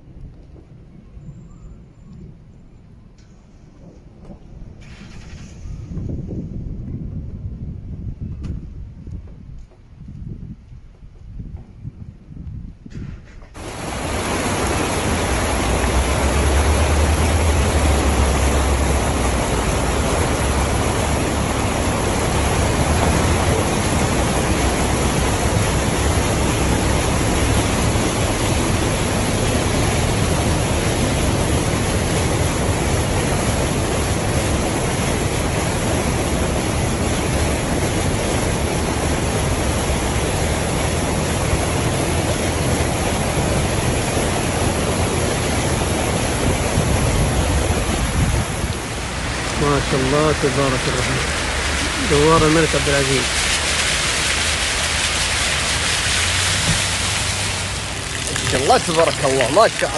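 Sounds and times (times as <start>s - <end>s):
floodwater splashing: 13.6s - 59.9s.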